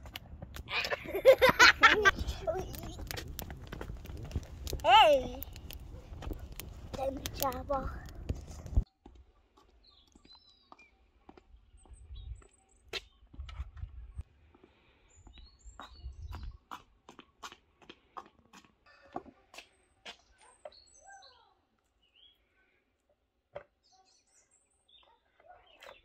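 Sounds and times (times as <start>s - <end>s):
low rumbles: 0.0s - 8.8s
small birds chirping: 2.0s - 26.0s.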